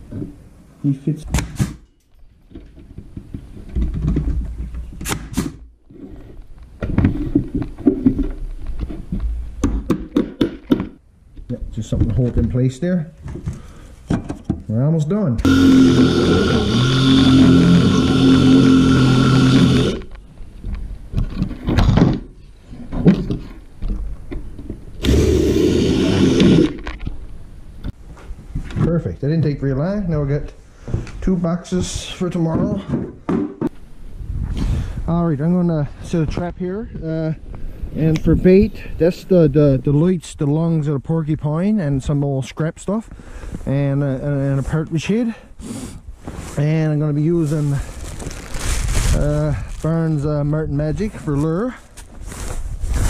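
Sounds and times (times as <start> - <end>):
cordless drill drilling into wood: 15.5 - 20.1, 25.0 - 26.8.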